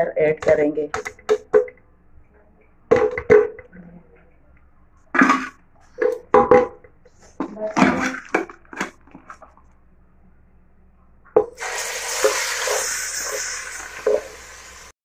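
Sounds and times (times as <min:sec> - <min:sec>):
paste sizzling in hot oil: 0:11.6 - 0:14.9.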